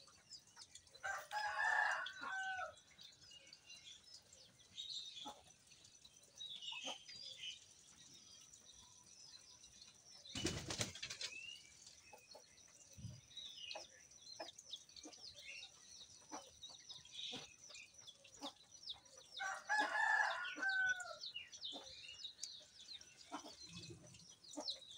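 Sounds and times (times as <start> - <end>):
birds chirping: 0.0 - 24.9
chicken clucking: 23.2 - 24.9.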